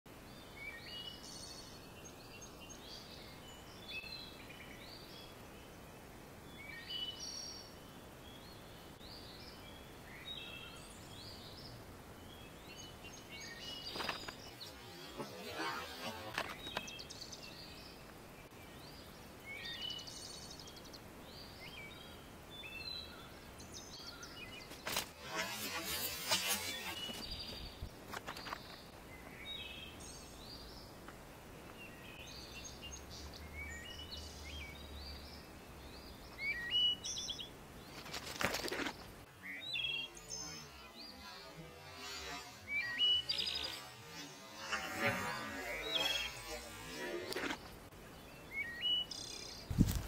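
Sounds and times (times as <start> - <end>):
small birds chirping: 0.1 - 50.0
noisy crackling burst: 24.8 - 28.4, 41.0 - 47.9.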